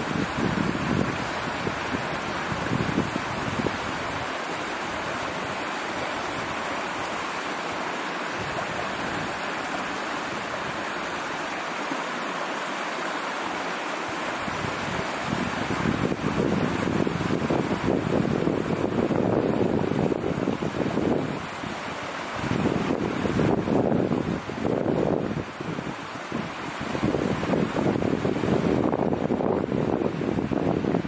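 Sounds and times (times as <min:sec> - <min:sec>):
wind buffeting microphone: 0:00.0 - 0:04.3, 0:14.4 - 0:31.0.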